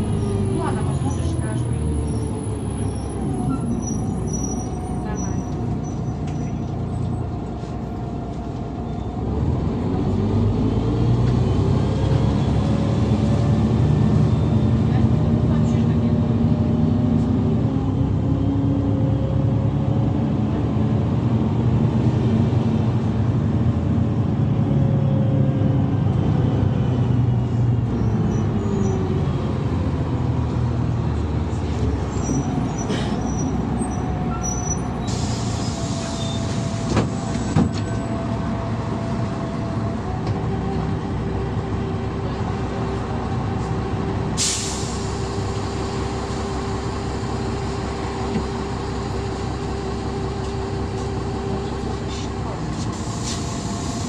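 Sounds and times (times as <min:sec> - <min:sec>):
bus engine drone and road noise: 0:00.0 - 0:54.0
air hissing: 0:52.8 - 0:54.0.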